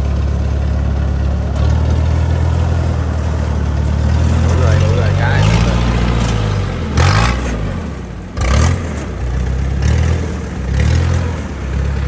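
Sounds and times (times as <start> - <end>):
combine harvester engine: 0.0 - 12.0.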